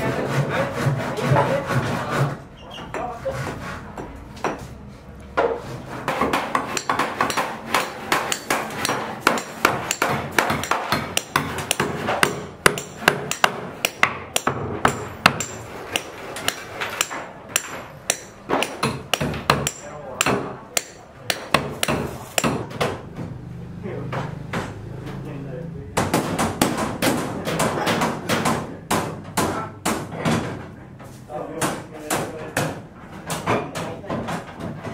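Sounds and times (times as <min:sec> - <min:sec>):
hammer striking wooden boards: 0:05.4 - 0:23.1, 0:26.0 - 0:30.7, 0:31.5 - 0:34.9.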